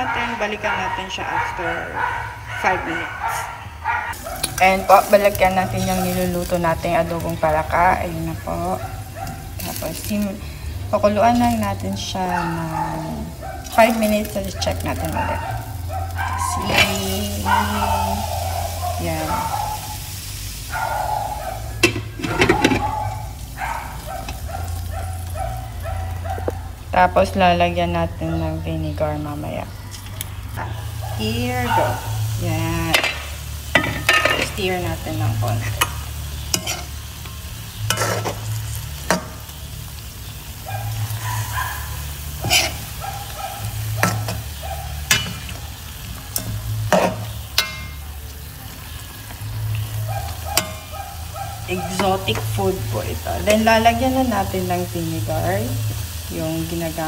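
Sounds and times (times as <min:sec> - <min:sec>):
liquid sizzling: 0:04.1 - 0:57.0
metal spoon clinking in wok: 0:46.4 - 0:48.0.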